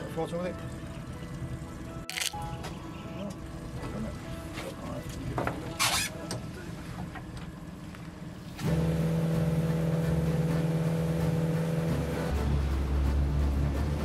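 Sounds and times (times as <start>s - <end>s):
outboard motor running: 0.0s - 14.0s.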